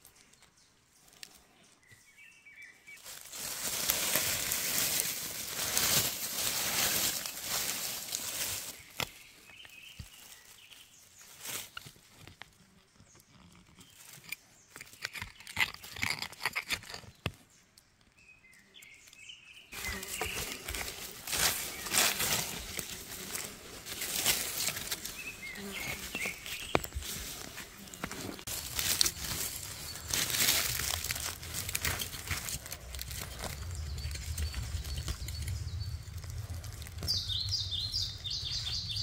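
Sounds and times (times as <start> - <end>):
digging tool scraping leaf litter: 3.0 - 9.1, 19.8 - 35.2
leaf litter crackles and clicks: 3.0 - 12.5, 19.8 - 38.0.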